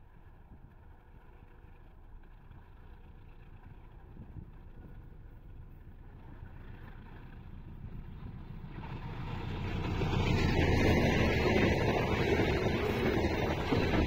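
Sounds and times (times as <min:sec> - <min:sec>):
locomotive rumbling past: 0:03.0 - 0:14.0.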